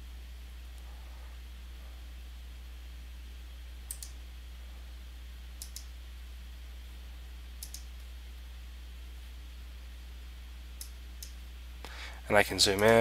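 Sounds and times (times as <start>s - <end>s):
steady low hum: 0.0s - 13.0s
computer mouse clicks: 3.9s - 4.2s, 5.6s - 5.9s, 7.6s - 8.1s.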